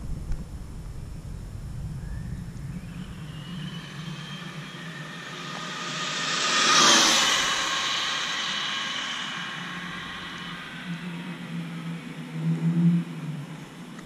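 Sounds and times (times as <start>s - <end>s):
tyre hiss: 4.3s - 11.9s.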